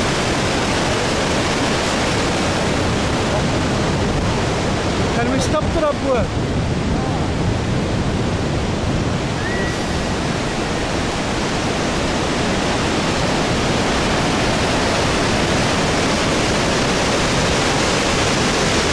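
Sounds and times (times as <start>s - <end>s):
waterfall rushing: 0.0s - 18.9s
faint whistle: 9.4s - 10.1s.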